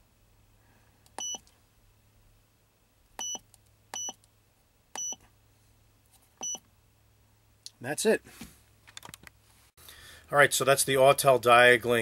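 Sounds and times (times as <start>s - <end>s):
short electronic key-press beeps: 1.2s - 1.4s, 3.2s - 4.2s, 5.0s - 5.2s, 6.4s - 6.6s.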